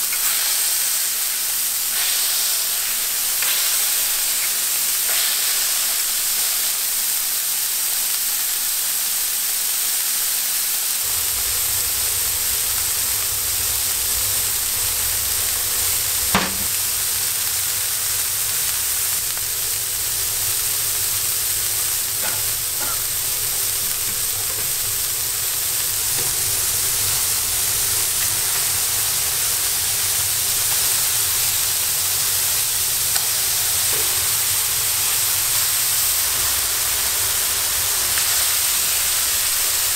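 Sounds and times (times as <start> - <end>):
meat sizzling on a griddle: 0.0 - 39.9
low rumble: 11.0 - 20.3
sharp knock: 16.3 - 16.8.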